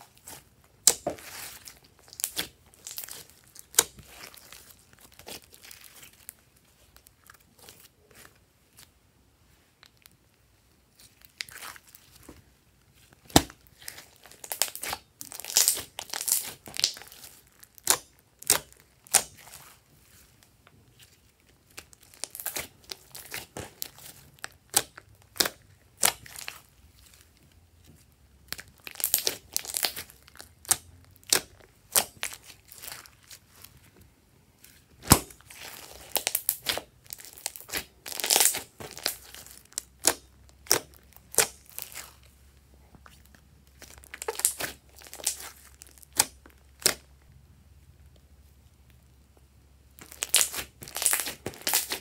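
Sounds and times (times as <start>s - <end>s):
slime popping and crackling: 0.0s - 6.4s, 13.2s - 19.8s, 21.6s - 26.7s, 28.4s - 33.7s, 35.0s - 42.3s, 43.7s - 47.1s, 50.0s - 52.0s.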